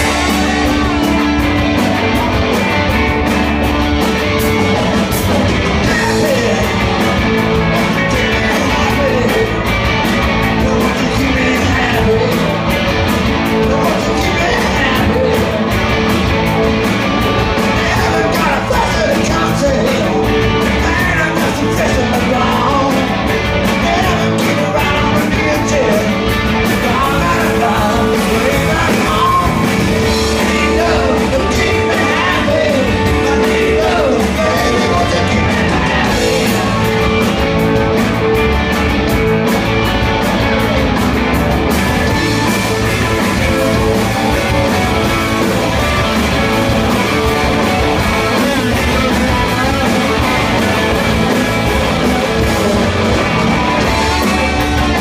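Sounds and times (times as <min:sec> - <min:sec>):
live rock band playing: 0:00.0 - 0:55.0
person singing: 0:05.8 - 0:07.0, 0:07.7 - 0:12.6, 0:13.5 - 0:15.8, 0:17.6 - 0:37.0, 0:42.3 - 0:55.0.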